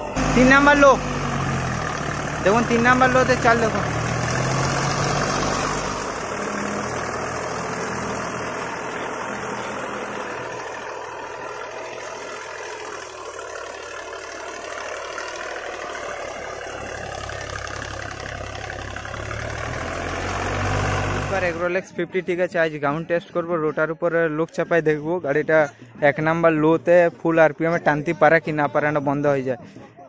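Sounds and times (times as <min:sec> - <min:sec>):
tractor diesel engine under load: 0:00.0 - 0:29.9.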